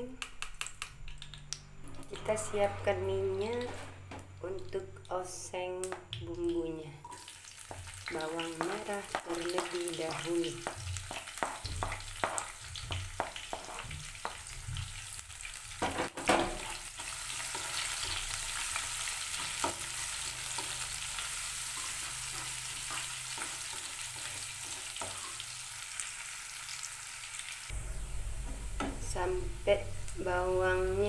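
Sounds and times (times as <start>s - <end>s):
shallots sizzling in hot oil: 7.1s - 31.0s
spatula knocking and scraping pan: 8.6s - 15.1s, 15.7s - 16.8s, 19.4s - 25.4s.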